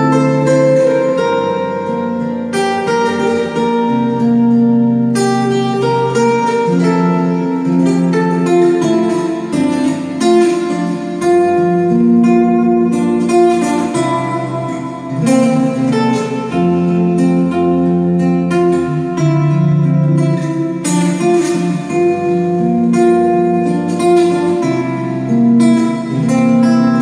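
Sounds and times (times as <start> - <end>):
classical guitar fingerstyle: 0.0 - 27.0.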